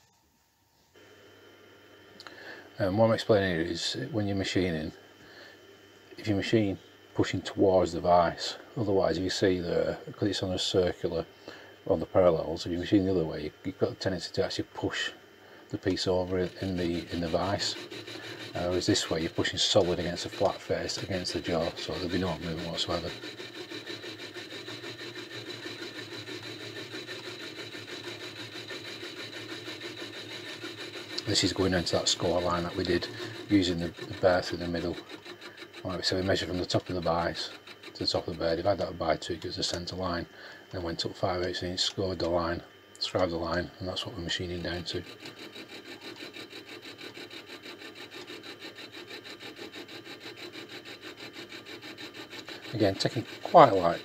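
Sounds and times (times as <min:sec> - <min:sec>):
spindle whine: 0:02.2 - 0:54.0
milling cutter grinding metal: 0:11.8 - 0:40.0, 0:40.8 - 0:54.0.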